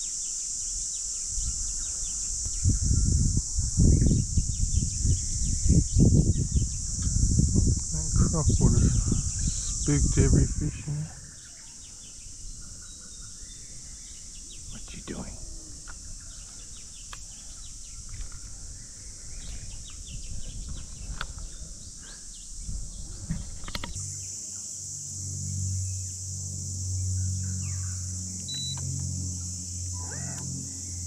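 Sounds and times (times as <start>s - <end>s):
insects buzzing: 0.0s - 31.0s
birds chirping: 0.8s - 24.4s
low steady hum: 1.4s - 22.0s.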